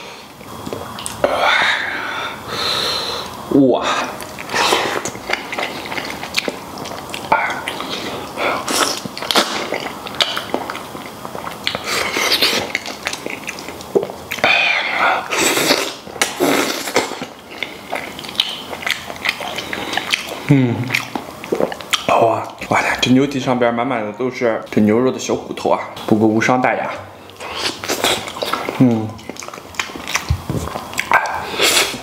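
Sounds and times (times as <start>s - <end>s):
wet chewing and smacking: 0.4s - 1.2s, 4.1s - 22.8s, 26.8s - 32.0s.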